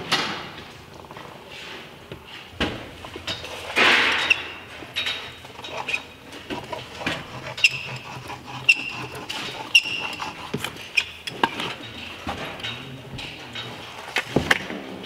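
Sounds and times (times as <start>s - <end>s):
caulk gun clicking and squeaking: 4.1s - 4.6s, 7.2s - 11.5s.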